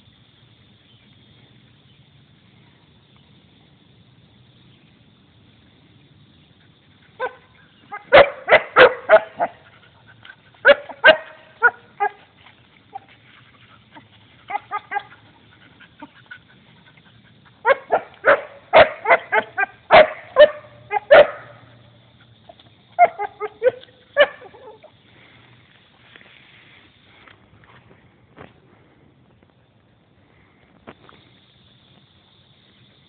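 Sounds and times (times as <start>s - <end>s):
dog barking: 7.2s - 9.6s, 10.6s - 12.2s, 17.6s - 21.7s, 23.0s - 24.8s.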